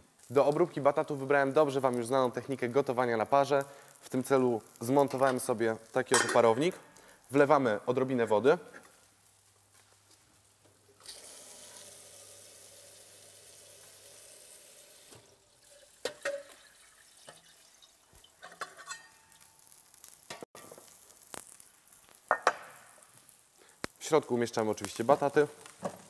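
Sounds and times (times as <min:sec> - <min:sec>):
metal pots clinking: 0:06.1 - 0:06.6, 0:15.6 - 0:19.4
tap water running into pot: 0:11.0 - 0:18.4.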